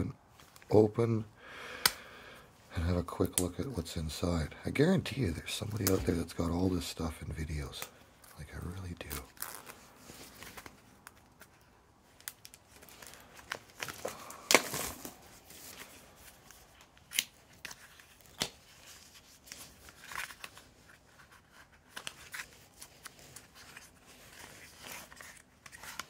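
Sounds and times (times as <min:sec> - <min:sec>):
playing cards rustling: 0:02.8 - 0:26.0
wrapper tearing: 0:09.0 - 0:11.4, 0:12.1 - 0:26.0
wrapper crinkling: 0:09.0 - 0:26.0.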